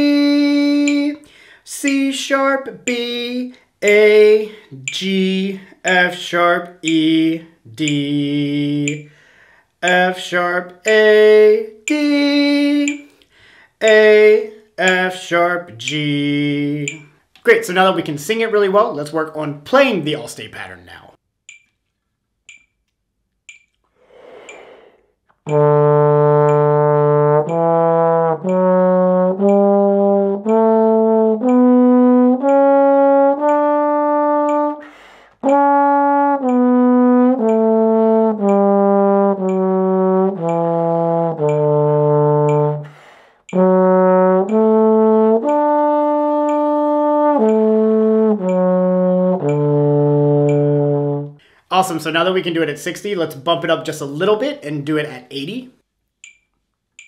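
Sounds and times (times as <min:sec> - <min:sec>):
metronome ticking: 0:00.0 - 0:57.0
breaths: 0:01.2 - 0:01.7, 0:04.5 - 0:04.8, 0:09.0 - 0:09.8, 0:13.1 - 0:13.8, 0:23.9 - 0:25.2, 0:34.8 - 0:35.4, 0:42.8 - 0:43.5, 0:51.4 - 0:51.7
trombone playing a scale: 0:25.5 - 0:51.4.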